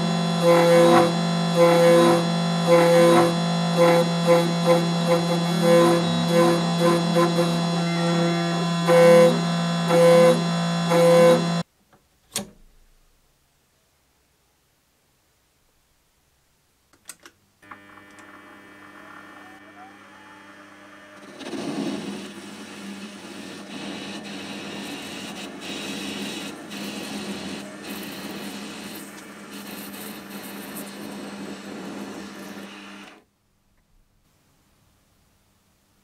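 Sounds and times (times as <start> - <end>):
lathe motor hum: 0.0 - 11.6, 17.6 - 33.2
rough metal cutting noise: 0.0 - 11.6.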